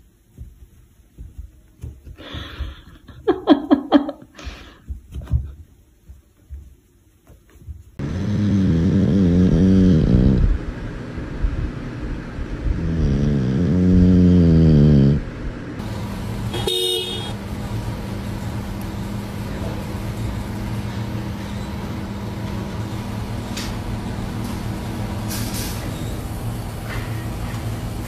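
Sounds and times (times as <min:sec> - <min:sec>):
dog snoring loudly: 0:08.0 - 0:10.6, 0:12.6 - 0:15.3.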